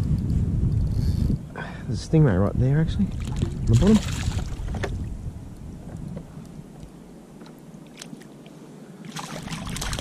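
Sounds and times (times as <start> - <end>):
fish thrashing and splashing: 9.1 - 10.0.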